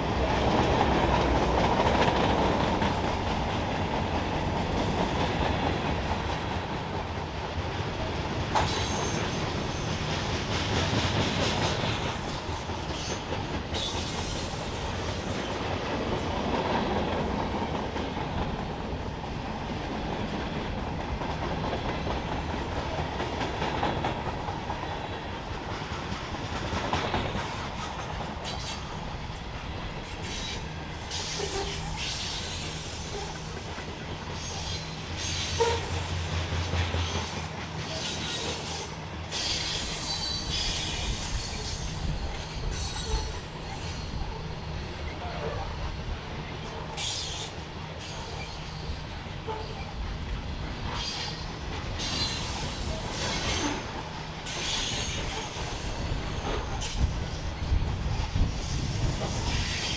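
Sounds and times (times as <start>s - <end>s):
freight train rumbling past: 0.0s - 59.9s
wheels clicking over rail joints: 0.1s - 45.9s
high wheel squeal: 8.7s - 10.0s, 37.9s - 44.3s, 50.9s - 53.8s.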